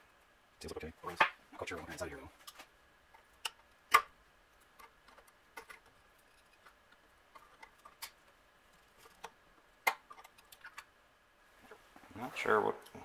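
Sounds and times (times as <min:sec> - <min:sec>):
small clicks and taps of parts: 0:02.4 - 0:08.4.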